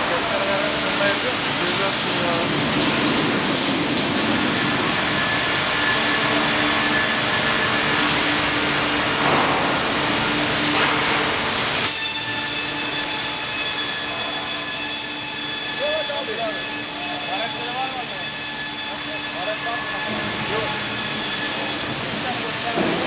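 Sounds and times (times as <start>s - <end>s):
bandsaw cutting a log: 11.8s - 22.0s
high ringing tones: 12.0s - 21.9s.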